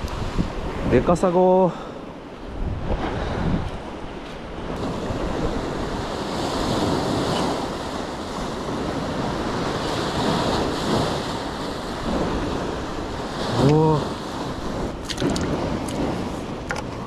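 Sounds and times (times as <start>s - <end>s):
sea waves washing: 0.0s - 17.0s
wind buffeting microphone: 0.0s - 17.0s.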